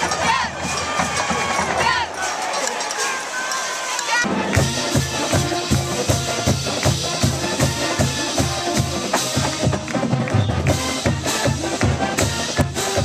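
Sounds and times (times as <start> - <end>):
music with heavy bass-drum beat: 4.3 - 13.0.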